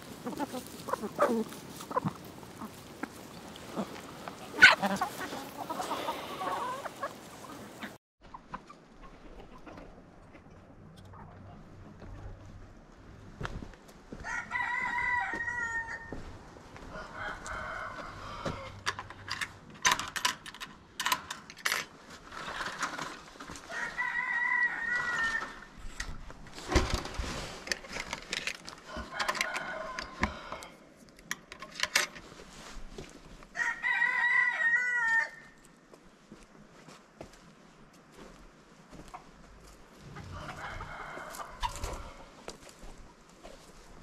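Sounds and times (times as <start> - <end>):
chicken calls: 0.0 - 10.4, 14.2 - 18.8, 28.8 - 30.7, 40.0 - 43.6
rooster crowing: 14.2 - 18.8, 23.7 - 25.7, 28.9 - 30.7, 33.6 - 35.6, 40.0 - 42.3.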